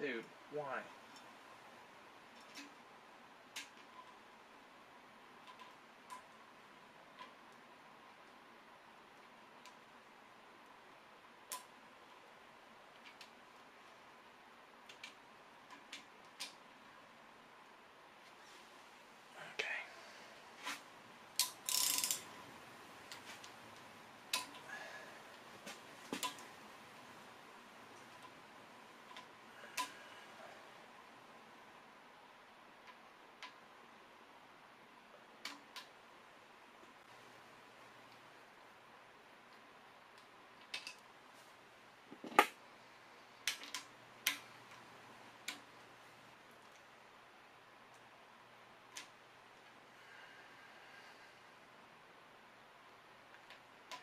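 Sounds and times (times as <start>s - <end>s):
metallic clicks of hand tools: 21.4s - 22.2s.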